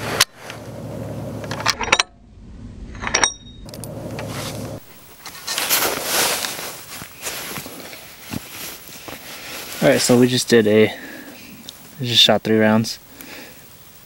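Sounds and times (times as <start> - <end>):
ringing ping of brass case: 3.0 - 3.9
rustling handling noise: 3.7 - 11.9.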